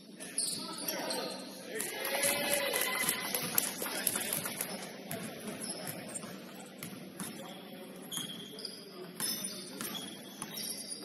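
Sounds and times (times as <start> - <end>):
sneaker squeaks: 0.2 - 1.6, 5.1 - 11.0
basketball bouncing on court: 3.4 - 8.4, 9.1 - 11.0.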